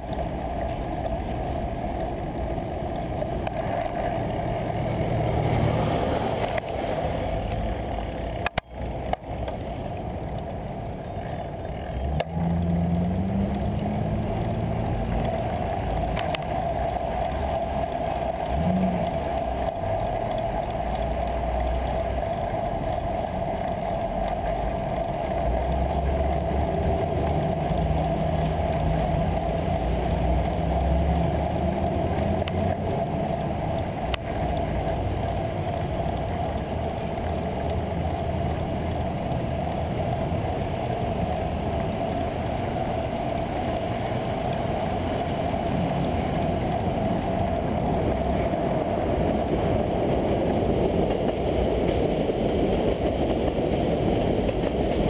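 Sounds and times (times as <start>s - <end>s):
road rumble: 0.0s - 55.0s.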